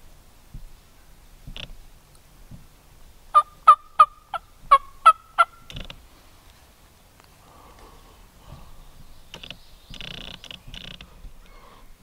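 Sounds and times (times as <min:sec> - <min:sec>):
turkey call yelps: 0:03.3 - 0:05.7.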